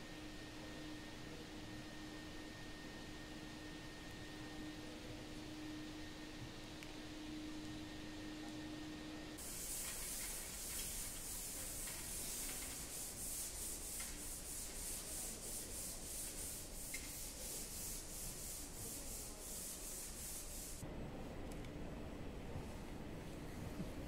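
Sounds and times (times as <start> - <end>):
sanding strokes on a wall: 9.4 - 20.8.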